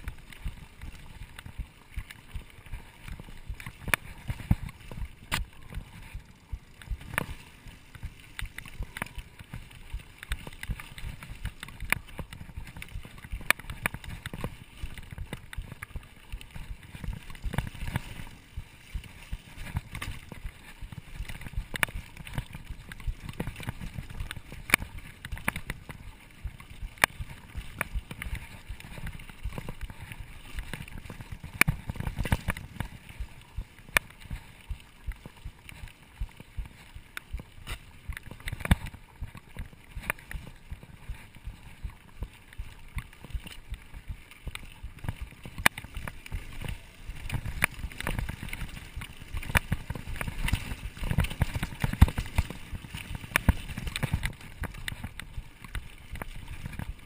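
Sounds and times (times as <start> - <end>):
bike clicks and rattles: 0.0 - 57.0
bike tyre and frame rumble: 0.0 - 57.0.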